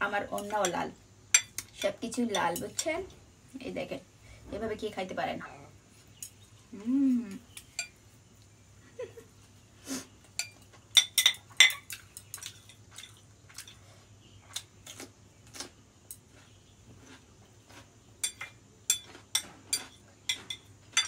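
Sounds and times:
person humming: 6.7 - 7.5
chopsticks clinking against a bowl: 7.5 - 8.0, 10.3 - 13.8, 18.2 - 21.0.

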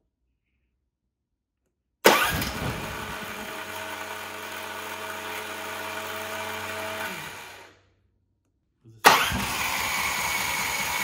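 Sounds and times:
engine starting and running: 2.0 - 7.9, 9.0 - 11.0.

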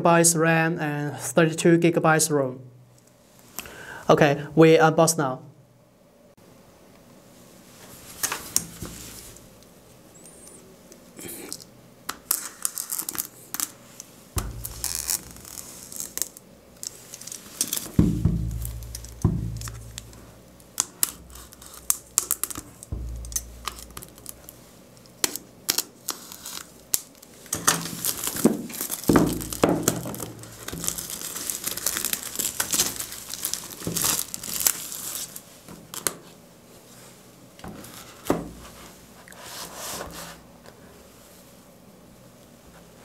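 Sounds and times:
plastic wrap tearing and crinkling: 11.4 - 36.3.

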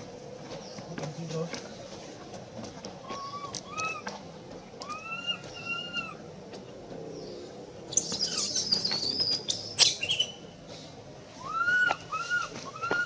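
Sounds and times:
infant monkey crying and screaming: 3.0 - 4.2, 4.8 - 6.2, 7.9 - 10.4, 11.4 - 13.0.

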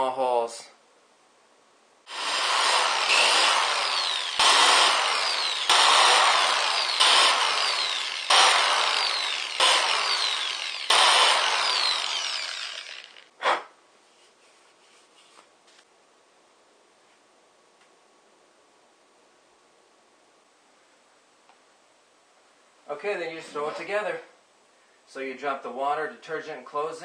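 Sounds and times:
electric drill boring through rubber: 2.1 - 13.3.

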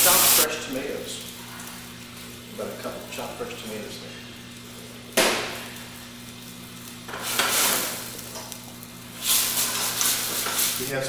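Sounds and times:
tomatoes sizzling in a pan: 0.0 - 11.0
metal tongs stirring: 9.2 - 11.0.

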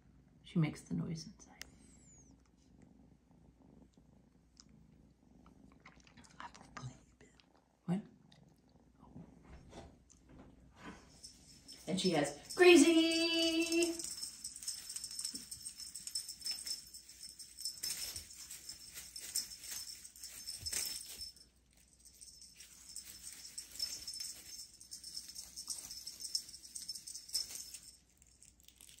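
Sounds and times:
streamers rustling and crinkling: 11.2 - 29.0.

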